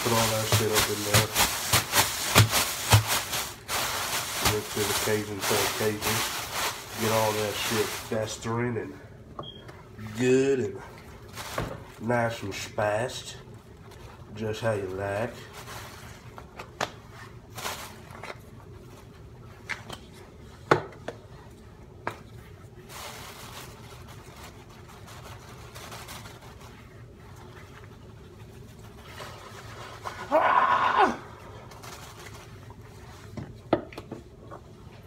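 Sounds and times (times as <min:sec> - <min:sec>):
plastic bag rustling: 0:00.0 - 0:08.9, 0:10.1 - 0:13.2, 0:13.9 - 0:16.4, 0:17.1 - 0:19.2, 0:22.8 - 0:30.2, 0:31.5 - 0:33.4.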